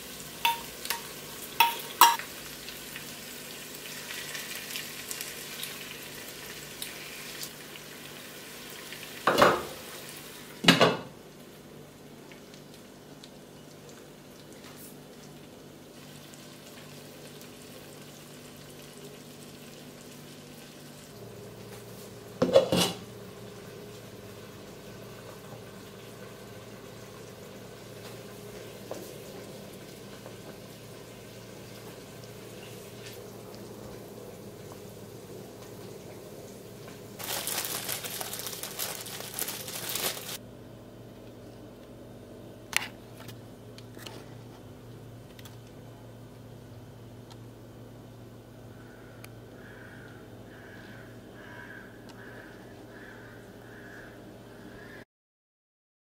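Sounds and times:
food sizzling in a pot: 0.0 - 10.6, 11.3 - 21.5
faint steady hum: 0.0 - 55.0
pots and pans clanking: 0.4 - 2.3, 22.4 - 23.1.

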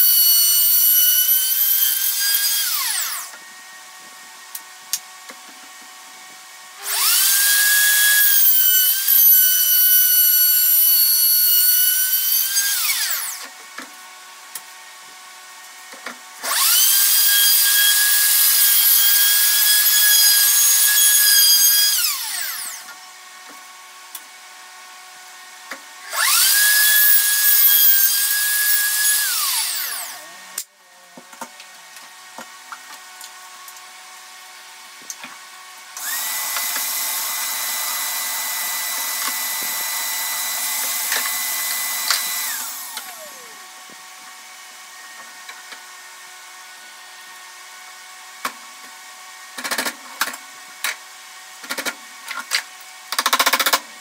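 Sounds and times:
electric router whining: 0.0 - 3.7, 6.4 - 13.6, 16.4 - 23.7, 25.0 - 30.6, 35.4 - 47.4.

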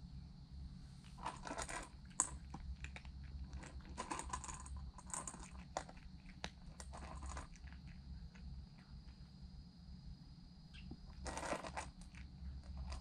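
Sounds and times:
cat crunching food: 1.1 - 9.2, 11.1 - 13.0.

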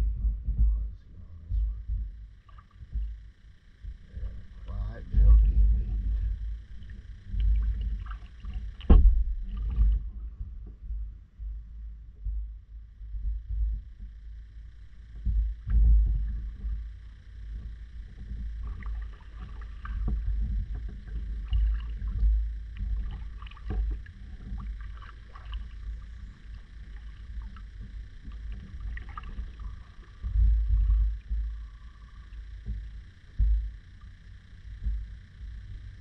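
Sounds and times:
paddle knocking against hull: 7.4 - 10.1, 18.2 - 31.7
paddle strokes splashing: 18.6 - 31.7.

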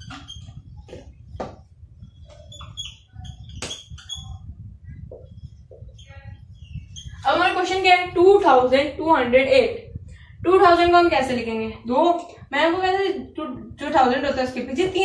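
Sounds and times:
marker pen squeaking on whiteboard: 0.0 - 7.7
steady low hum: 0.0 - 15.0.

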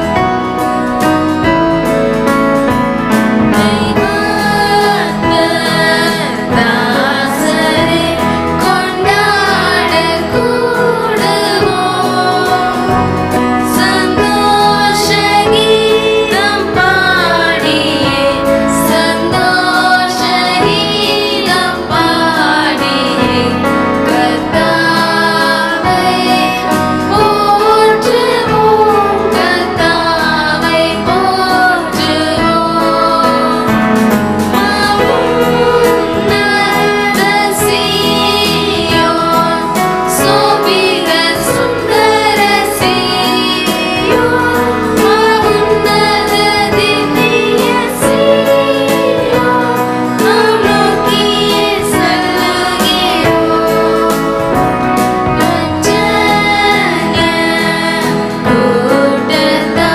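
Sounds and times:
instrumental accompaniment: 0.0 - 59.9
woman singing: 3.5 - 33.8, 34.6 - 59.9.

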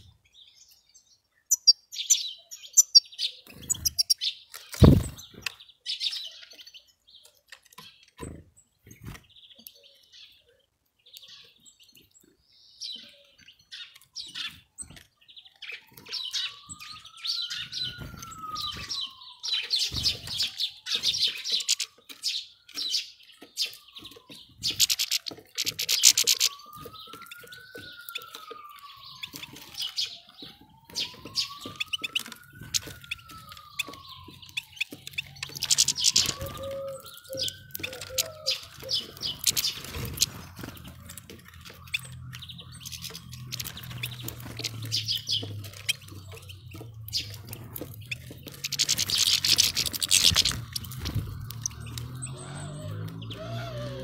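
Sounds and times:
small birds chirping: 0.0 - 54.0.

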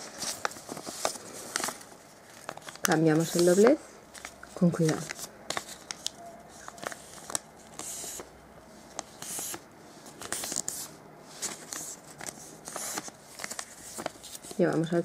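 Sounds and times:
paper rustling: 0.0 - 8.3, 8.9 - 14.9
glossy paper crackling and creasing: 9.0 - 14.9.

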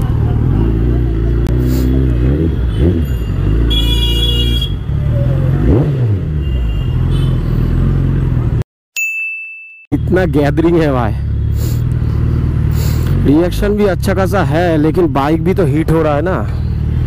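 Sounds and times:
motorcycle engine at low revs: 0.0 - 3.8, 11.2 - 14.2
vehicle horn: 2.5 - 4.9, 6.4 - 7.6.

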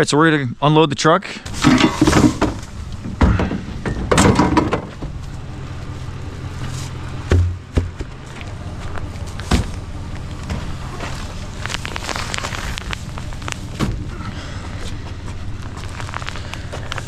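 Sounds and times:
engine idling: 1.4 - 17.0
knocks of gear being unloaded: 1.5 - 5.3.

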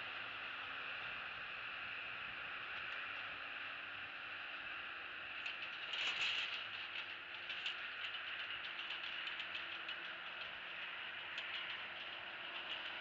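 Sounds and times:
dry grass rustling and crackling: 5.4 - 12.9.

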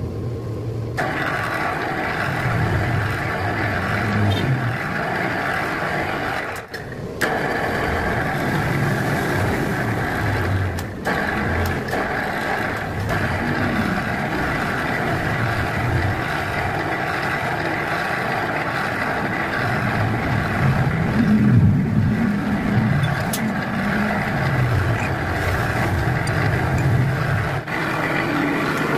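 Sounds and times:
electric motor running: 1.0 - 28.9.

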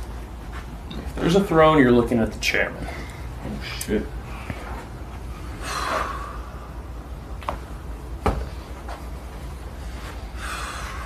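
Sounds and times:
breathy exhale: 5.4 - 6.9, 10.0 - 11.0.

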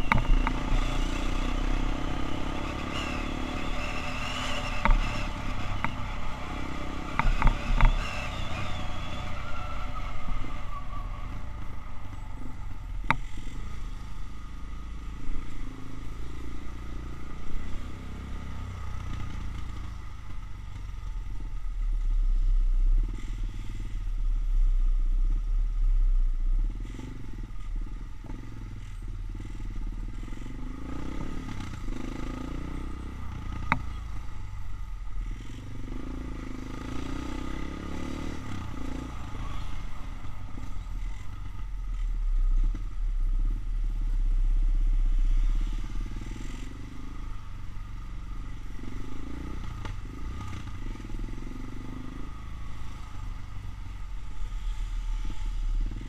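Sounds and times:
motorcycle engine running: 0.0 - 56.0
low rumble: 20.4 - 26.8.

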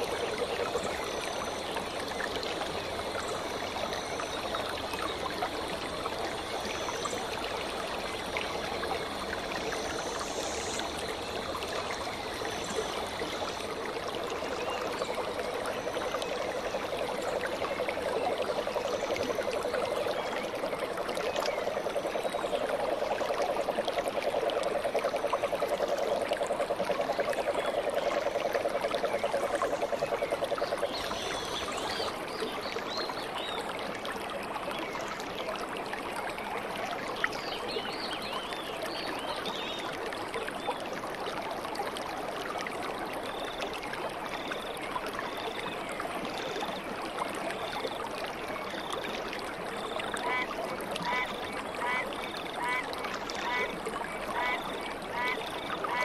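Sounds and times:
water running over rocks: 38.8 - 56.0.

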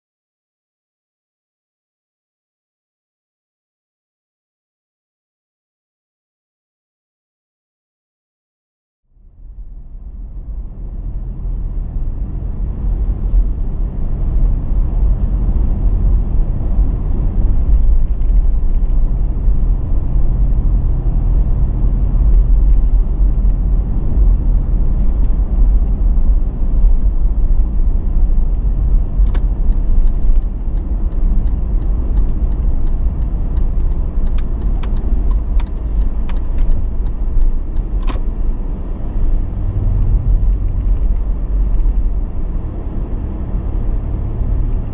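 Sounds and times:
car road and engine rumble: 9.1 - 44.9
sharp ticks: 29.2 - 38.2.

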